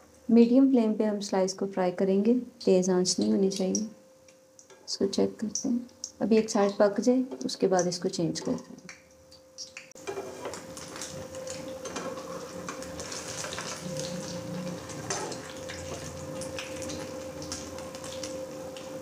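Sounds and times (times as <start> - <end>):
bread frying in oil: 9.6 - 19.0.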